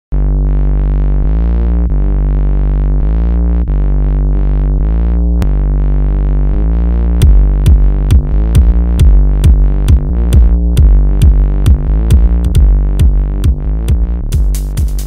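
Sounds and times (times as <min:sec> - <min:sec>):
synthesizer chords: 0:00.1 - 0:15.0
drum beat: 0:07.2 - 0:15.0.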